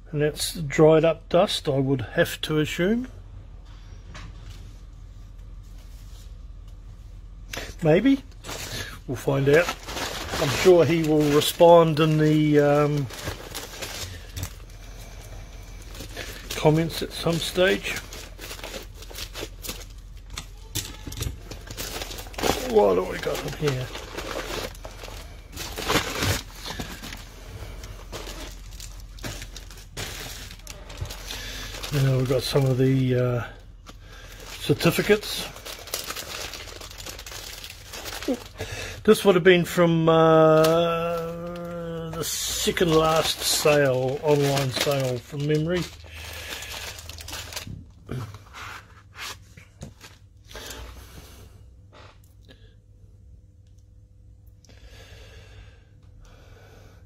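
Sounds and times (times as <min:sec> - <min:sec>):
plastic bags rustling: 0:07.6 - 0:50.9.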